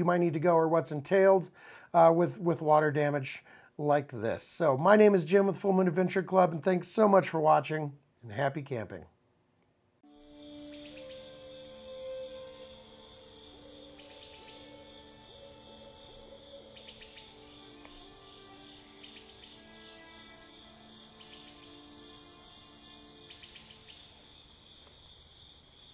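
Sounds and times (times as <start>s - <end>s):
crickets trilling: 10.1s - 25.9s.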